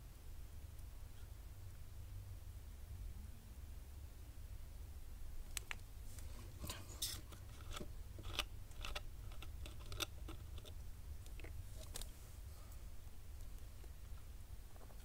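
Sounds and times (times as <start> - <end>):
steady low hum: 0.0 - 15.0
plastic bottle cap twisting: 7.0 - 12.1.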